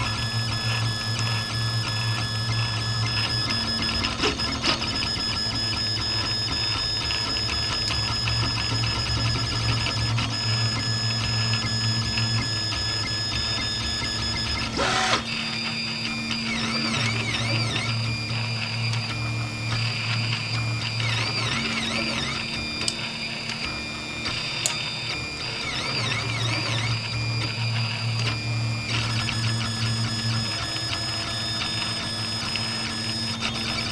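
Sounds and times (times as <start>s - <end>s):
motors whining up and down: 0.0s - 33.9s
printer motors humming with whine: 0.0s - 33.9s.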